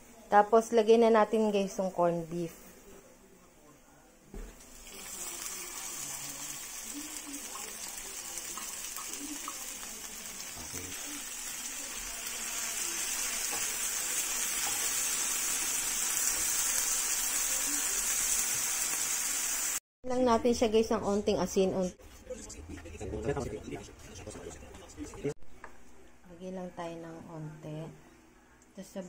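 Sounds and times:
food sizzling in hot oil: 4.6s - 19.8s.

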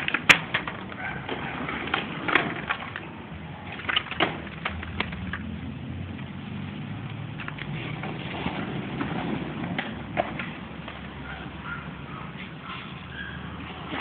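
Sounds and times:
skateboard clacks: 0.0s - 6.3s, 7.0s - 11.6s
skateboard wheels rolling on pavement: 0.0s - 14.0s.

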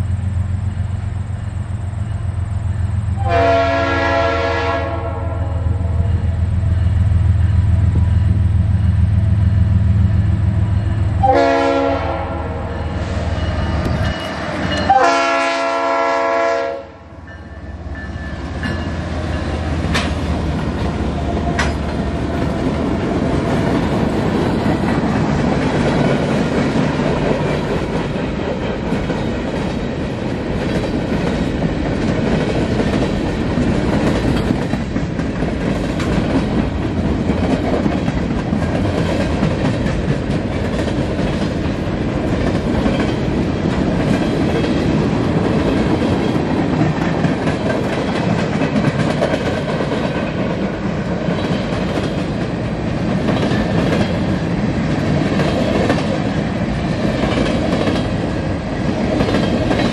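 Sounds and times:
diesel locomotives rumbling: 0.0s - 59.9s
train wheels rolling on rail: 0.0s - 59.9s
train air horn blasts: 3.2s - 6.0s, 11.2s - 17.2s.

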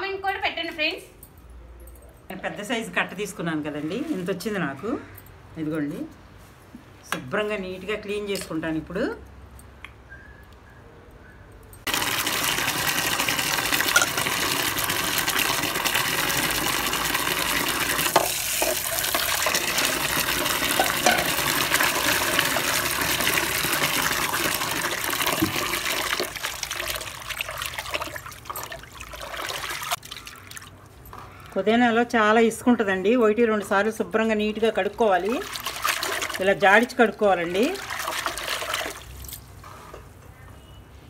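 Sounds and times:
tap water running: 11.9s - 30.7s, 34.7s - 39.2s
water splashing: 11.9s - 31.0s, 35.0s - 39.2s.

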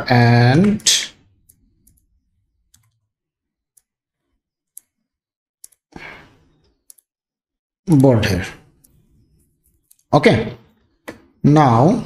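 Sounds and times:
mouse and keyboard clicks: 2.7s - 3.0s, 5.6s - 5.9s, 6.8s - 7.1s, 8.8s - 10.1s.

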